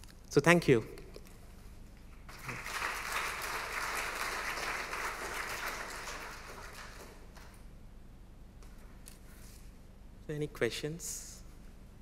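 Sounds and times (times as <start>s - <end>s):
audience applauding: 2.3s - 7.6s.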